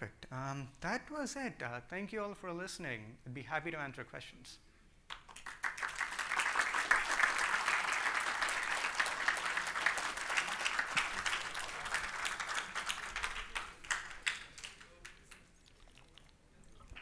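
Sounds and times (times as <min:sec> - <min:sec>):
audience applauding: 0:05.1 - 0:15.5.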